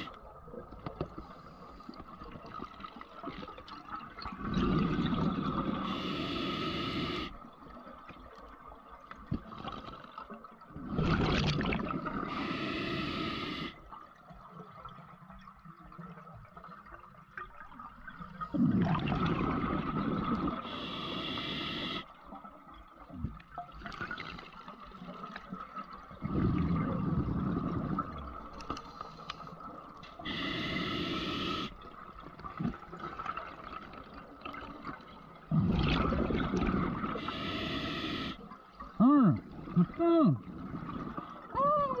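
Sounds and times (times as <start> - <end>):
exhaled bubbles rushing: 3.4 - 6.0, 10.8 - 12.5, 18.4 - 20.8, 26.1 - 28.6, 31.4 - 37.4
regulator hiss on inhale: 5.8 - 7.4, 12.3 - 13.8, 20.6 - 22.1, 30.2 - 31.8, 37.1 - 38.4
faint steady tone: 20.2 - 22.4, 28.6 - 32.3, 37.0 - 40.5.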